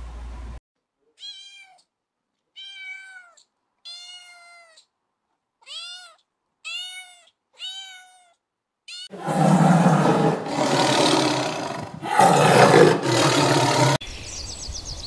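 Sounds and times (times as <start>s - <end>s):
kitten meowing: 2.6s - 4.8s, 5.6s - 9.1s.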